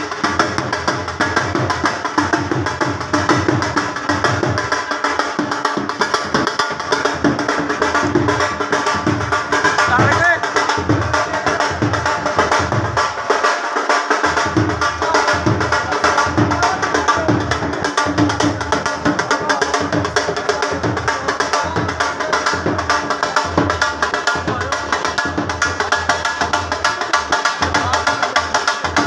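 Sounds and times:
drum beaten in fast rhythm: 0:00.0 - 0:29.0.

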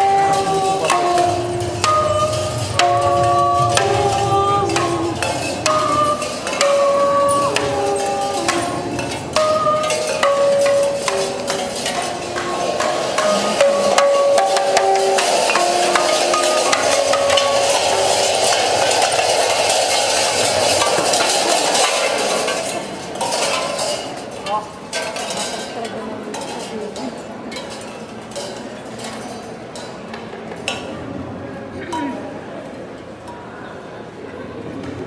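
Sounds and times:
short pitched notes: 0:00.0 - 0:22.0
tin cans and metal cups clinking: 0:00.0 - 0:30.0.

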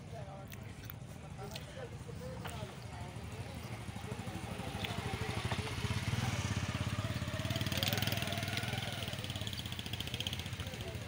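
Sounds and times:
small engine running: 0:02.8 - 0:11.0.

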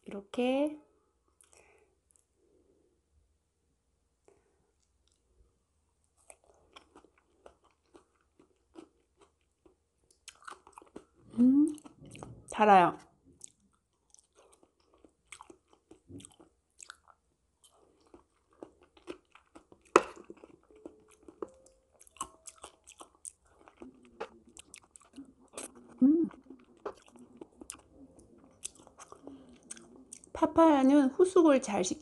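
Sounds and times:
close-up chewing: 0:06.1 - 0:12.6, 0:13.3 - 0:30.4
person humming: 0:11.4 - 0:11.7, 0:26.0 - 0:26.3.

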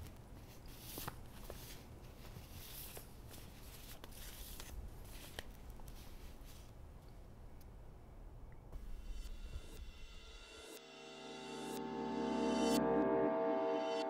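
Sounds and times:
paper envelopes rustling: 0:00.0 - 0:06.9.

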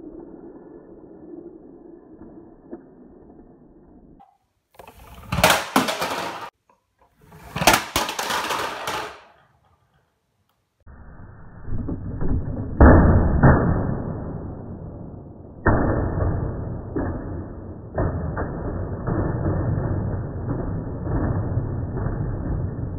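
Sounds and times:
toy cars knocking on wooden floor: 0:05.2 - 0:06.6, 0:07.5 - 0:09.6.

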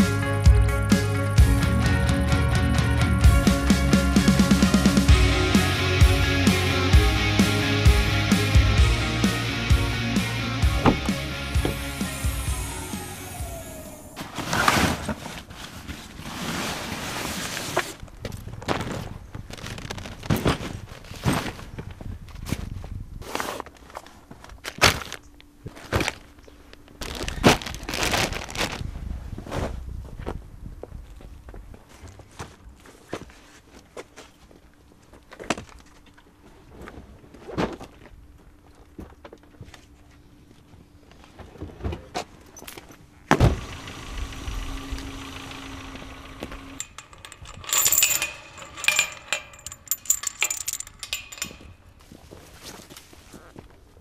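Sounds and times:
fabric bags rustling: 0:27.0 - 0:28.9.

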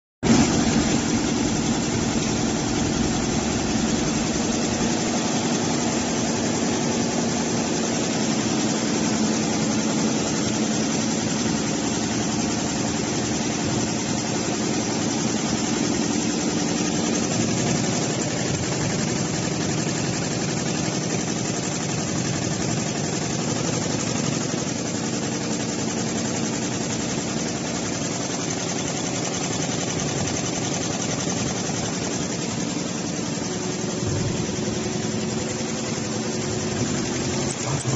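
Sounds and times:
embroidery machine stitching: 0:00.3 - 0:37.9.

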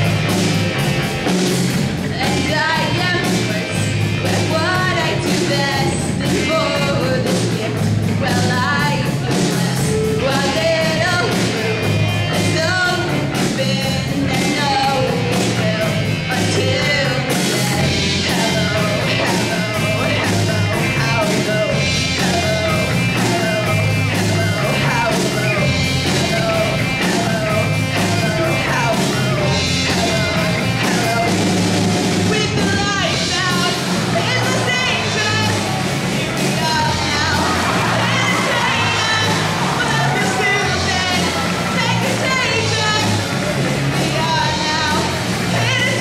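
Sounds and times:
bass guitar: 0:00.0 - 0:46.0
drums: 0:00.0 - 0:46.0
woman singing: 0:02.1 - 0:23.7, 0:36.5 - 0:43.2, 0:43.9 - 0:46.0.

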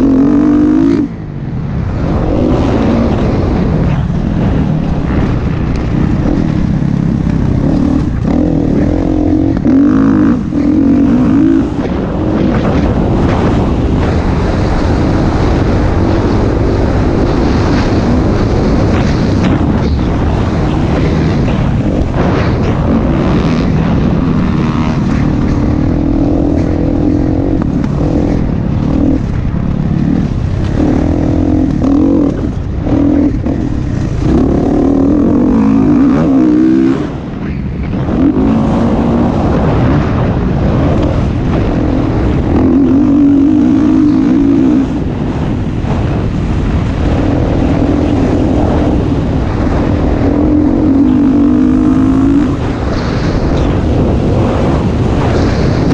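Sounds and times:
motorcycle engine revving: 0:00.0 - 0:55.9
wind rumbling on microphone: 0:00.0 - 0:55.9.

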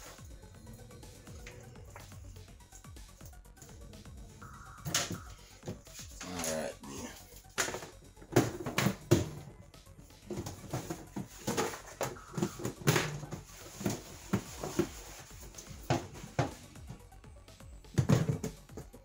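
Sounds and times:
background music with steady beat: 0:00.0 - 0:19.0
plastic dishes knocking in sink: 0:18.0 - 0:18.8.

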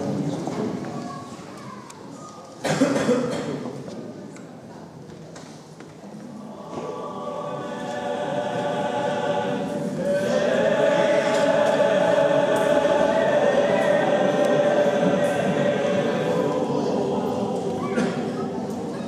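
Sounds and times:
choir singing long held notes: 0:06.4 - 0:19.0.

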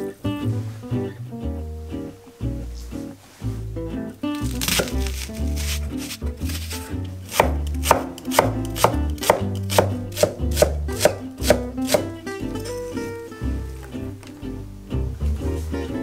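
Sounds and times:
soft background music: 0:00.0 - 0:16.0
knife chopping on wooden board: 0:04.6 - 0:06.6, 0:07.3 - 0:12.1.

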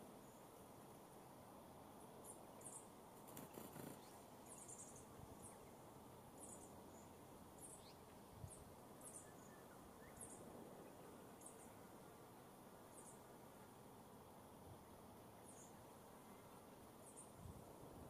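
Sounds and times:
bird chirps: 0:02.2 - 0:05.8, 0:06.4 - 0:10.4.

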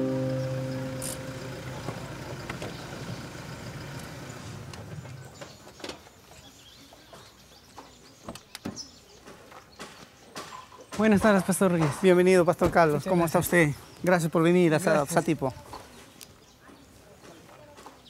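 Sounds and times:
background music: 0:00.0 - 0:01.8
outdoor ambience: 0:00.0 - 0:18.0.

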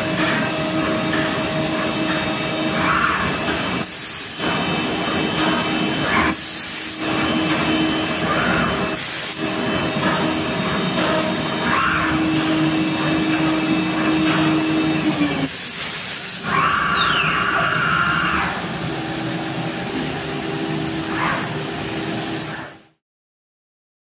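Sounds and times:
dust extraction running: 0:00.0 - 0:22.9
woodworking machinery whir: 0:00.0 - 0:23.0
loud drilling: 0:01.5 - 0:19.6.

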